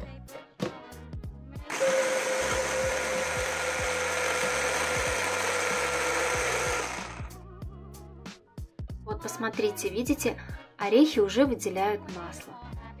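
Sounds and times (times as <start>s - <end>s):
hand blender motor whining: 1.7s - 7.3s.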